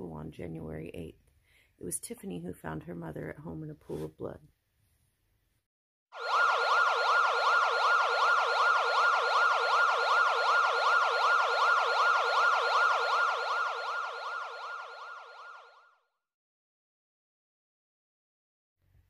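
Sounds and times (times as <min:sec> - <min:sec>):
siren yelping: 0:06.2 - 0:15.9.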